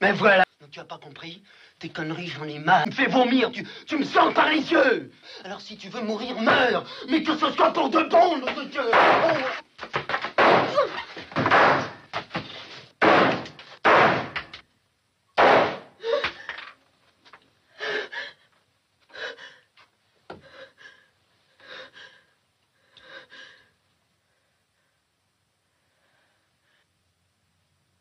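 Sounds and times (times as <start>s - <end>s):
pistol shots in a small room: 10.3s - 10.8s, 11.4s - 12.1s, 13.0s - 14.6s, 15.4s - 16.0s
woman gasping sobs: 16.0s - 16.6s.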